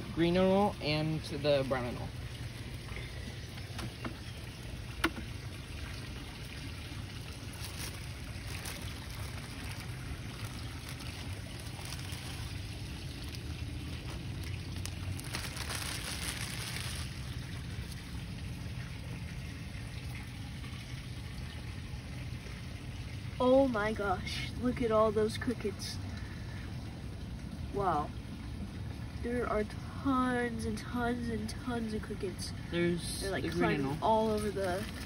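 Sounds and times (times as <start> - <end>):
low outdoor rumble: 0.0 - 35.0
plastic bag rustling: 7.4 - 18.2, 34.3 - 35.0.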